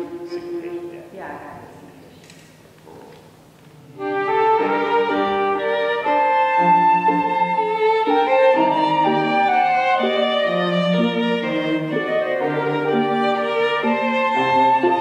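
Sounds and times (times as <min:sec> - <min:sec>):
flute and string quartet playing: 0:00.0 - 0:00.6, 0:03.9 - 0:15.0.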